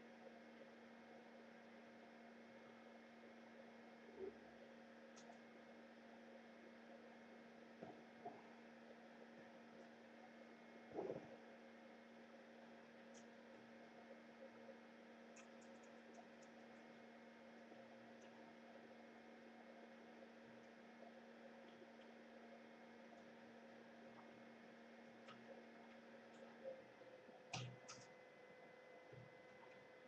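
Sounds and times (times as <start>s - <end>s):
faint electrical hum: 0.0s - 30.0s
faint ticks: 15.3s - 16.9s.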